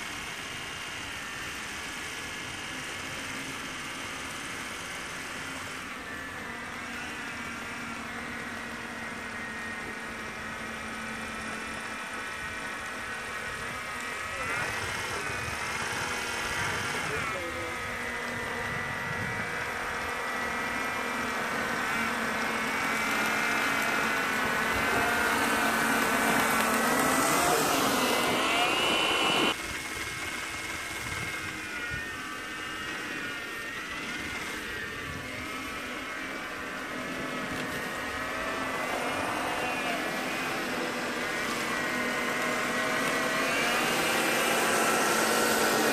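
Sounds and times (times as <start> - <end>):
small snow blower motor whining: 0.0 - 45.9.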